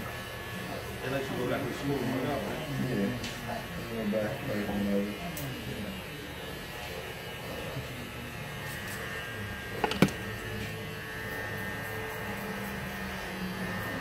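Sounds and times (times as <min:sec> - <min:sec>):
electric hair clippers humming: 0:03.7 - 0:14.0
sharp knock: 0:09.8 - 0:10.2.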